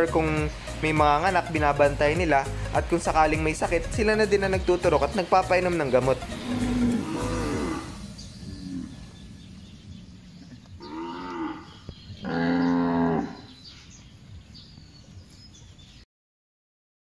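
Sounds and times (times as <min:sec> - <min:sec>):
cattle mooing: 0:06.3 - 0:08.1, 0:10.8 - 0:13.5.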